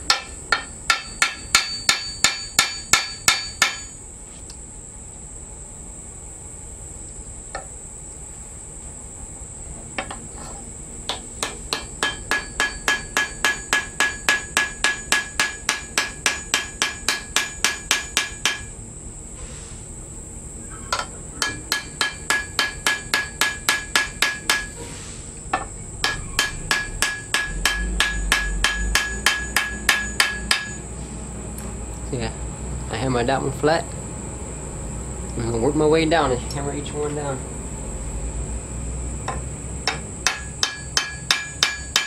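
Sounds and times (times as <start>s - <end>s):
hammer tapping metal on anvil: 0.0s - 4.0s, 11.1s - 18.7s, 20.9s - 24.7s, 25.5s - 30.8s, 39.2s - 42.0s.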